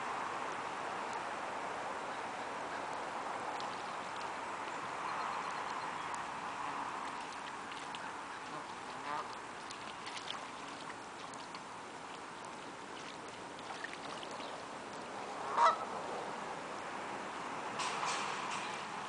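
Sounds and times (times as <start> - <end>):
geese honking: 8.0 - 9.4, 15.5 - 15.9.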